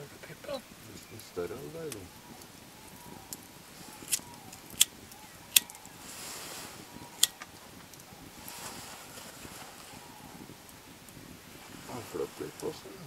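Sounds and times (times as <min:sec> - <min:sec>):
campfire crackling: 0:00.0 - 0:13.0
sharp pops from burning logs: 0:00.6 - 0:06.0, 0:06.8 - 0:11.6.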